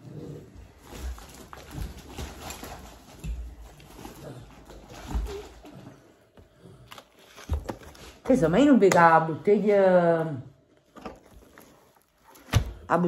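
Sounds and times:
plastic packaging rustling: 0.6 - 6.0, 10.8 - 12.8.

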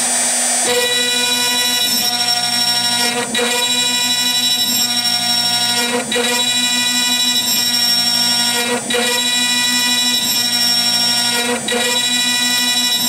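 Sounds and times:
router spindle high-pitched whine: 0.0 - 13.0.

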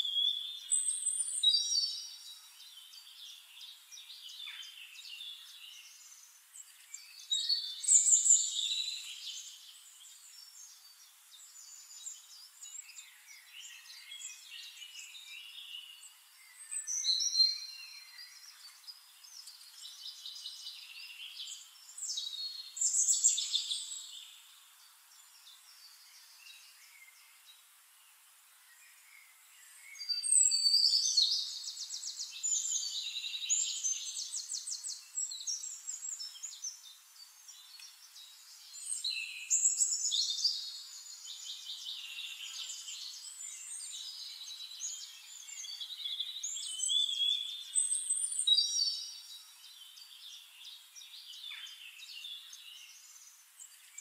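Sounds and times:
songbirds singing and chirping: 0.0 - 54.0.

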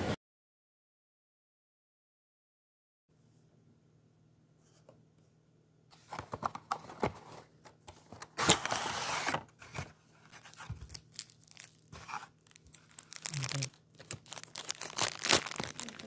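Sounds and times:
cardboard rustling: 6.0 - 16.0
plastic crinkling: 10.2 - 16.0.

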